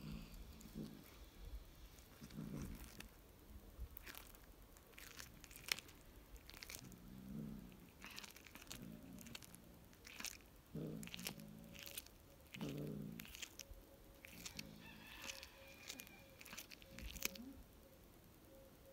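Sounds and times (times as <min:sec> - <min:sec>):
cat chewing bones: 0:00.0 - 0:17.6.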